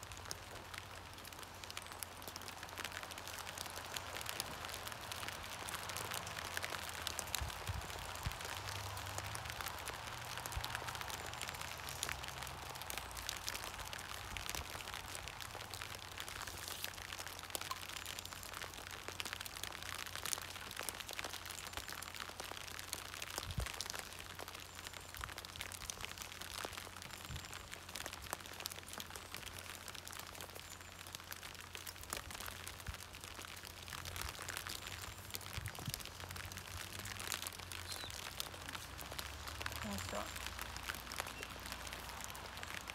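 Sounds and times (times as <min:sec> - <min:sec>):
rain on a plastic sheet: 0:00.0 - 0:42.9.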